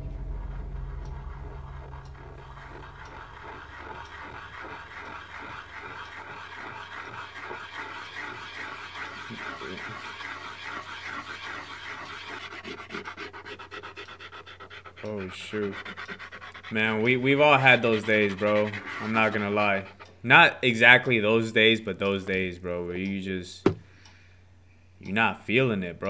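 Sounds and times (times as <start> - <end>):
low steady hum: 0.0 - 26.0
pencil scratching on paper: 0.4 - 21.6.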